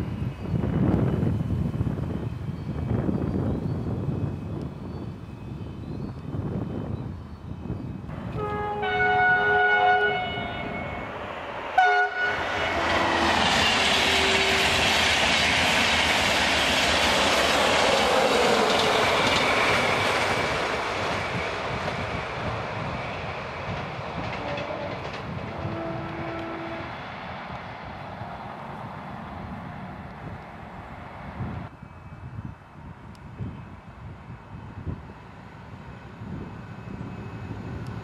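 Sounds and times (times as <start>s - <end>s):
train rushing past: 0.0s - 32.2s, 32.8s - 38.0s
train horn blasts: 8.2s - 14.9s, 24.3s - 27.0s.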